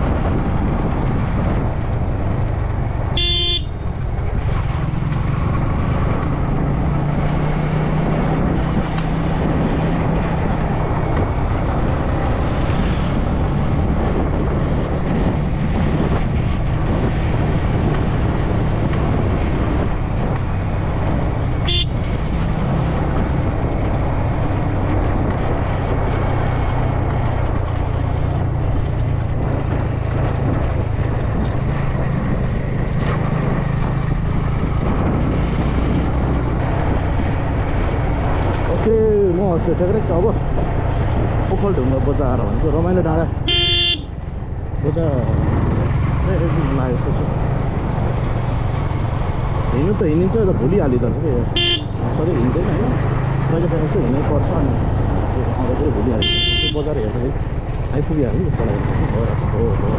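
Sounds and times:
motorcycle engine cruising: 0.0 - 59.9
wind noise: 0.0 - 59.9
horn toots: 3.2 - 3.8, 21.6 - 22.1, 43.4 - 44.2, 51.5 - 52.0, 56.2 - 56.9.

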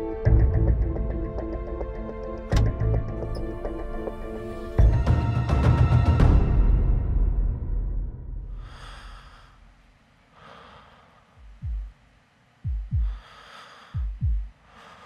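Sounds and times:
heavy breathing: 8.5 - 11.9, 12.9 - 15.0
heartbeat thumps: 11.4 - 12.0, 12.6 - 14.6.

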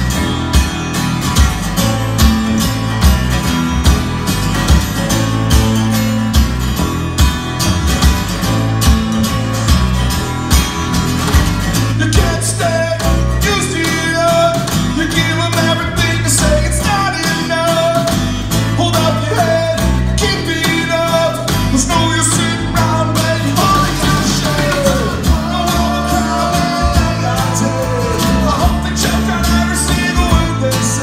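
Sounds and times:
live rock band playing: 0.0 - 31.0
person singing: 18.8 - 31.0.

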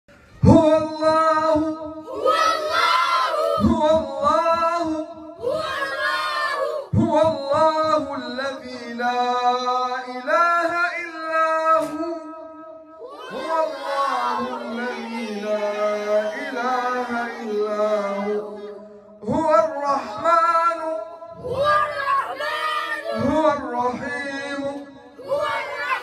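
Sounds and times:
children singing in unison: 2.0 - 3.8, 5.4 - 7.0, 13.0 - 18.8, 21.3 - 26.0.

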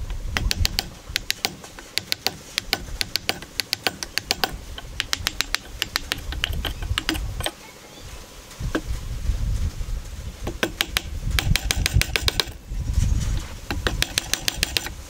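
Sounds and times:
chisel tapping into wood: 0.4 - 7.6, 10.5 - 12.6, 13.7 - 15.0.

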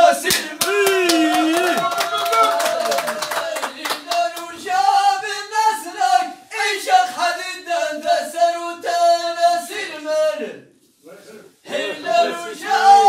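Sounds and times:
men singing chant-like poetry: 3.4 - 10.7, 11.7 - 13.0.

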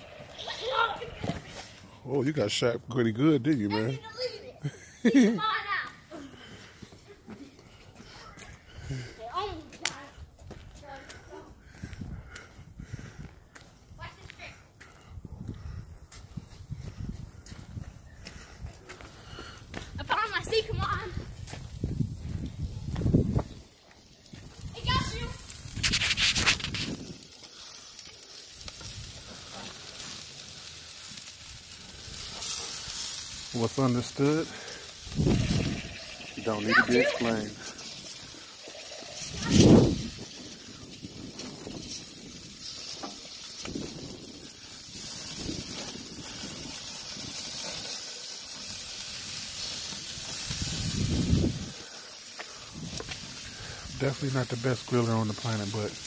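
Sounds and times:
rustling noise: 0.0 - 2.0, 19.8 - 34.4, 35.1 - 56.0
meat sizzling on a grill: 0.0 - 6.3, 20.0 - 56.0.

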